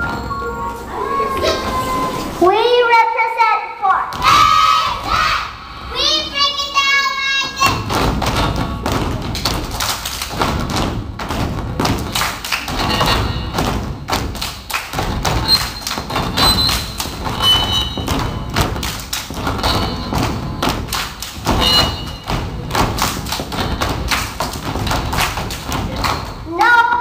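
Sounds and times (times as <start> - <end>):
music playing: 0.0 - 2.5
feet stomping on wooden stage: 7.6 - 26.5.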